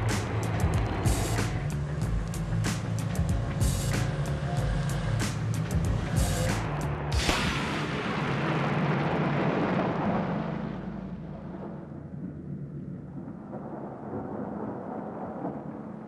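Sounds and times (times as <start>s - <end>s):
low rumble: 0.0s - 16.0s
tank gun shot echoing: 7.2s - 9.8s.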